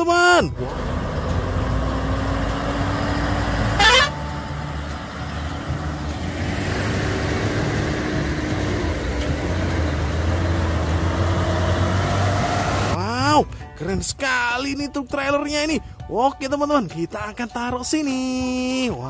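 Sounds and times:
truck diesel engines running: 0:00.0 - 0:14.0.

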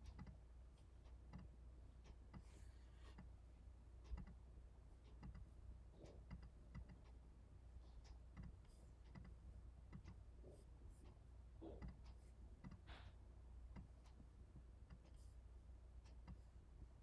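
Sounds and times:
computer keys and mouse clicks: 0:00.0 - 0:00.4, 0:01.1 - 0:03.4, 0:04.0 - 0:04.4, 0:05.1 - 0:07.2, 0:08.0 - 0:10.3, 0:10.9 - 0:15.4, 0:16.0 - 0:16.6
low steady hum: 0:00.0 - 0:17.0.

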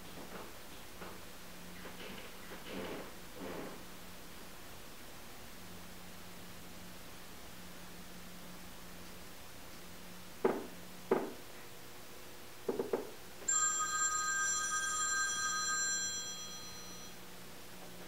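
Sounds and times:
telephone ringing: 0:13.5 - 0:17.2.

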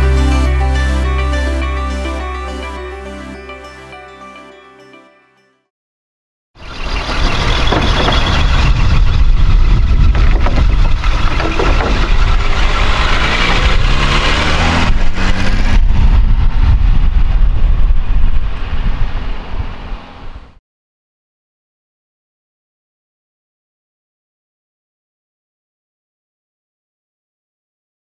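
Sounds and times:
car driving by: 0:06.6 - 0:17.0.

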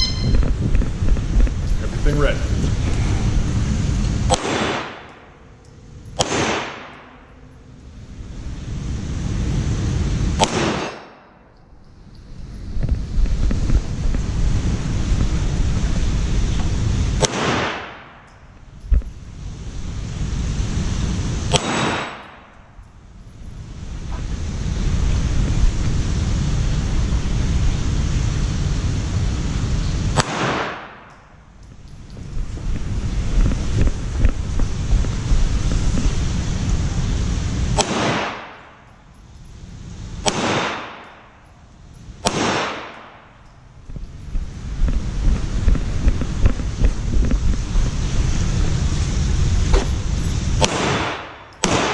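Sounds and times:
steady background rush: 0:00.0 - 0:51.9
pistol shots: 0:04.3 - 0:05.1, 0:06.2 - 0:07.0, 0:10.4 - 0:11.3, 0:17.2 - 0:18.2, 0:21.5 - 0:22.4, 0:30.2 - 0:31.1, 0:37.8 - 0:38.6, 0:40.2 - 0:41.3, 0:42.2 - 0:43.3, 0:50.6 - 0:51.9.

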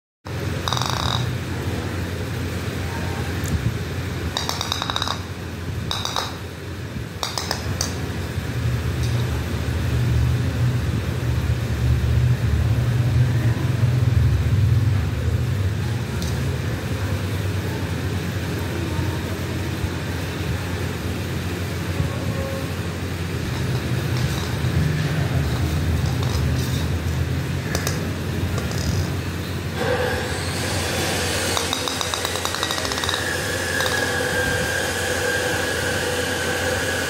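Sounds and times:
steady low hum: 0:00.3 - 0:37.0
plastic toy ball clinking on hard floor: 0:00.6 - 0:01.4, 0:04.3 - 0:05.3, 0:05.9 - 0:06.4, 0:07.2 - 0:08.0, 0:26.0 - 0:27.0, 0:27.7 - 0:29.2, 0:31.6 - 0:34.2.

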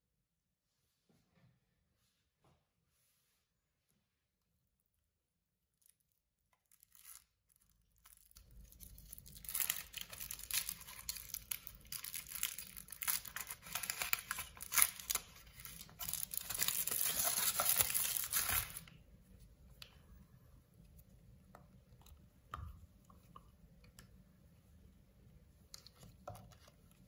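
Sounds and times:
foil wrapper crinkling and tearing: 0:06.6 - 0:18.9.

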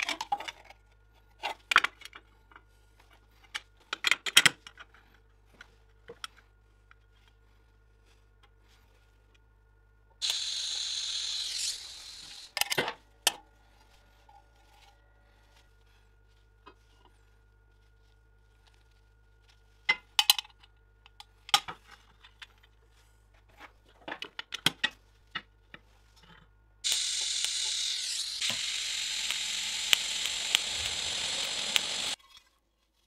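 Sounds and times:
welding arc hissing and crackling: 0:10.2 - 0:12.5, 0:26.8 - 0:32.2.

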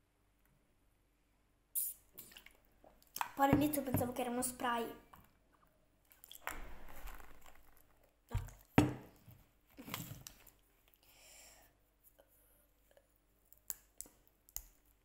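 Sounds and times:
wet sucking and smacking mouth sounds: 0:01.8 - 0:03.4.

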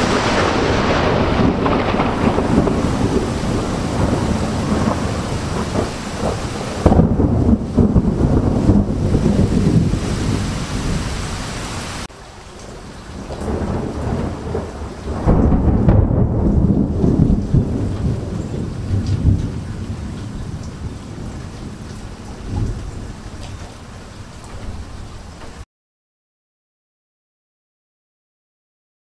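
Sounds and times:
rolling thunder: 0:00.0 - 0:12.1, 0:12.7 - 0:23.8
steady rain: 0:00.0 - 0:25.7.

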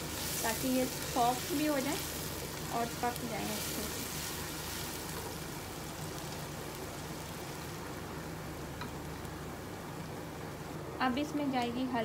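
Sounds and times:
wooden spatula stirring: 0:00.0 - 0:06.4
onions sizzling in oil: 0:00.0 - 0:11.4.

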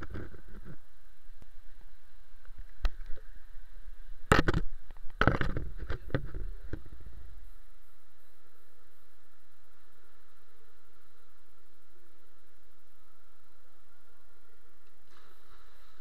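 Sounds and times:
faint hiss: 0:00.0 - 0:16.0.

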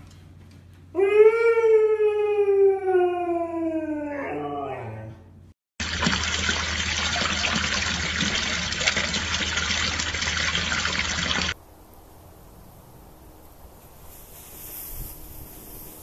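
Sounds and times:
running water splashing: 0:05.8 - 0:11.6
faint hiss: 0:11.8 - 0:16.0.

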